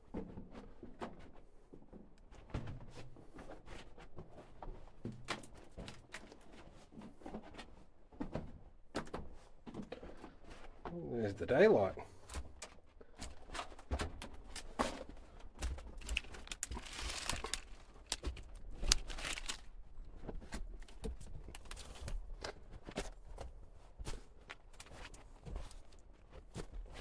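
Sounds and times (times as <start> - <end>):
footsteps on rocky floor: 12.1 - 27.0.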